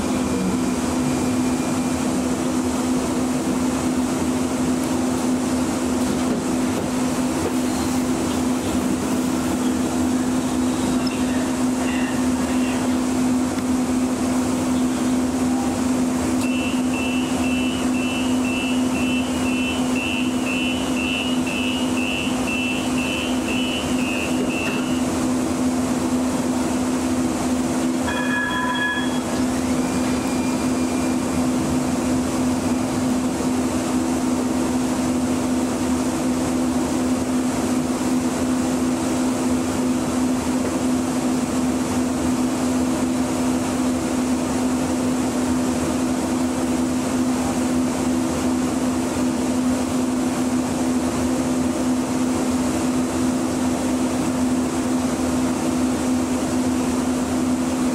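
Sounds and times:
light rail vehicle electric hum: 0.0 - 57.9
short electronic chime: 28.0 - 31.1.

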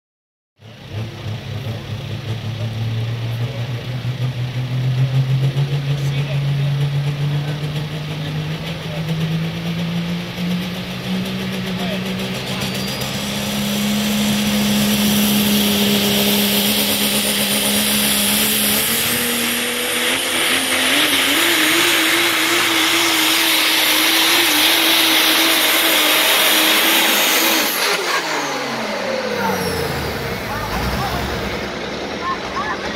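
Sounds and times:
diesel truck engine at high rpm: 0.6 - 32.9
thin whistle: 12.5 - 13.9.

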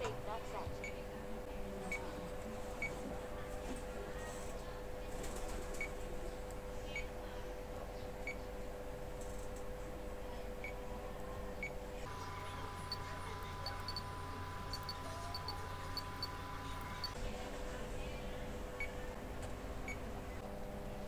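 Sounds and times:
faint steady hum: 6.1 - 21.0.

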